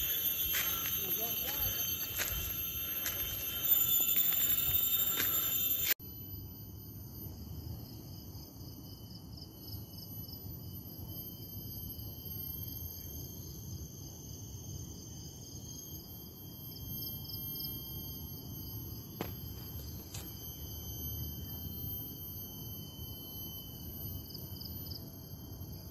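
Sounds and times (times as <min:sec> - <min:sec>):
insects chorus: 0:00.0 - 0:25.9.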